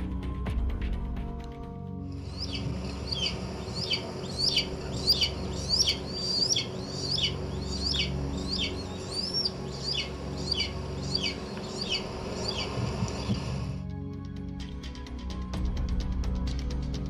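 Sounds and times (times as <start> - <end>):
hawk calling: 2.2 - 13.6.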